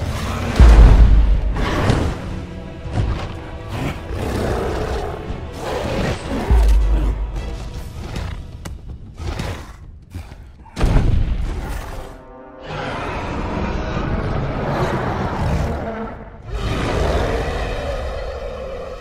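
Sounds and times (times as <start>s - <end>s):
dramatic music: 0.0s - 9.5s, 11.0s - 18.5s
heavy boom: 0.6s - 2.2s
creature growls and roars: 11.6s - 19.0s.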